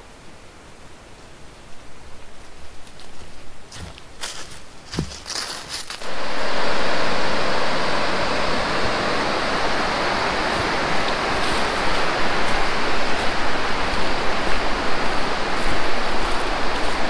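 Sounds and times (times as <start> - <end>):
river rapids rushing: 6.0 - 17.0.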